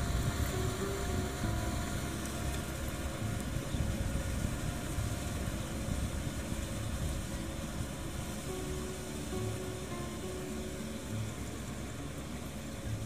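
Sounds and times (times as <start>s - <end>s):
tractor diesel engine rumbling: 0.0s - 13.0s.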